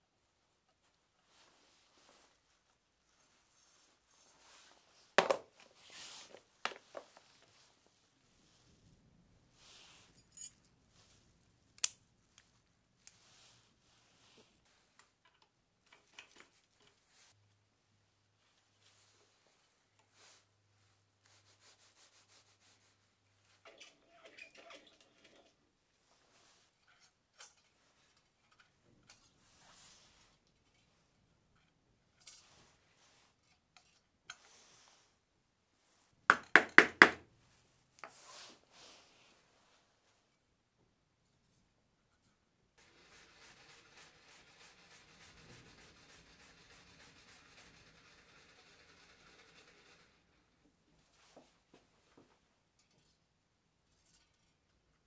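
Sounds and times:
metal rubbing and rattling: 42.8s - 50.6s.

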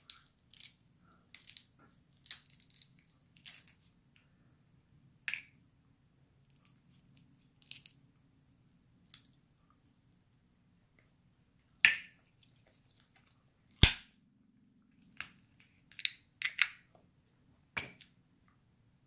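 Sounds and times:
crab shells cracking: 0.1s - 3.7s, 15.2s - 16.9s.

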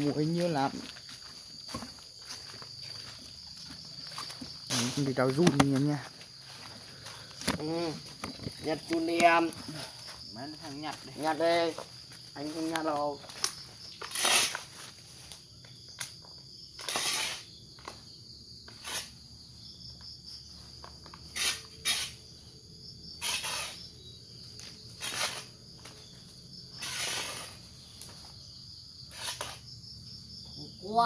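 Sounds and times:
high-pitched insect chorus: 0.0s - 31.0s
stick scraping through dry leaves: 14.0s - 15.0s, 25.0s - 25.5s, 26.8s - 27.6s.

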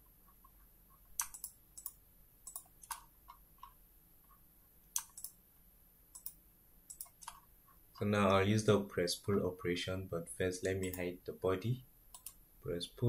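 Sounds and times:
computer mouse clicking: 0.3s - 5.4s, 6.1s - 8.1s, 10.8s - 11.1s, 12.1s - 12.4s.

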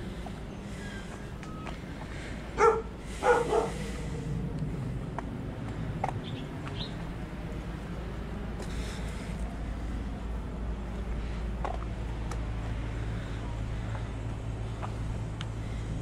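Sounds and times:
dog barking: 2.6s - 3.8s.

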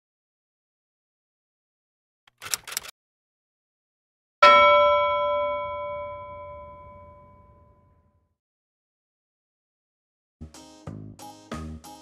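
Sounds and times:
bell-like ding: 4.4s - 8.0s.

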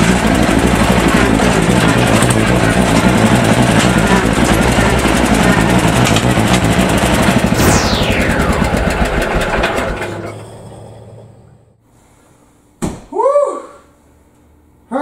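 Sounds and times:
garden tractor engine running: 0.0s - 7.6s.

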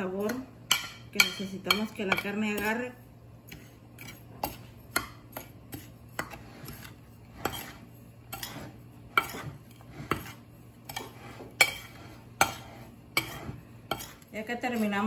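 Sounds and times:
metal spoon scraping ceramic plate: 5.7s - 14.9s.

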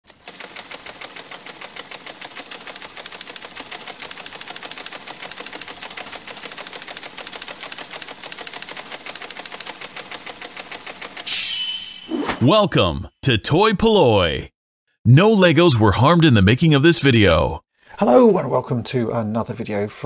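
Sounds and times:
rapid typewriter-like clicking: 0.1s - 11.3s.

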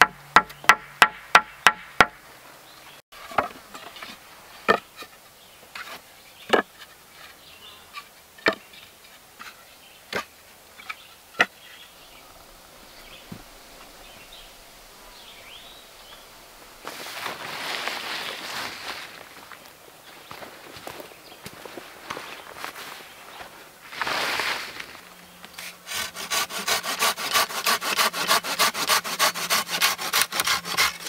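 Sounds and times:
sharp knocks: 0.0s - 2.2s.

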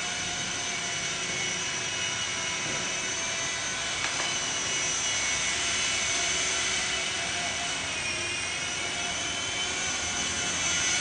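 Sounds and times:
rc helicopter whine: 0.0s - 11.0s.

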